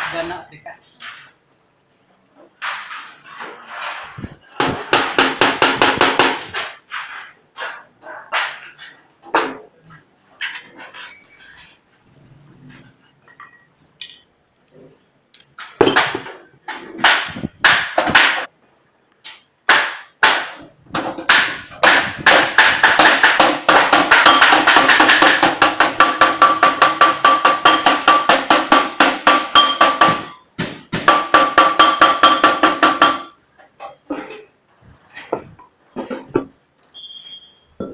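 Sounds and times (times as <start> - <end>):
hammer on sheet metal: 4.0 - 8.7, 15.8 - 18.5, 19.7 - 33.4.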